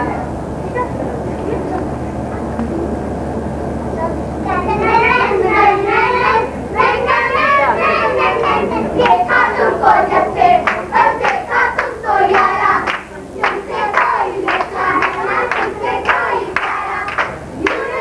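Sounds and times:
voices singing: 0.0 - 18.0
hand claps: 10.6 - 18.0.

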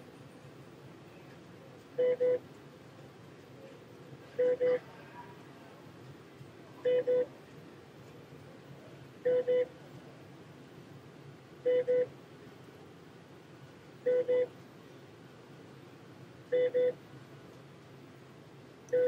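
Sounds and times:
faint steady hum: 0.0 - 19.0
electronic alarm beeps: 11.7 - 12.1, 14.1 - 14.5, 16.5 - 17.0.

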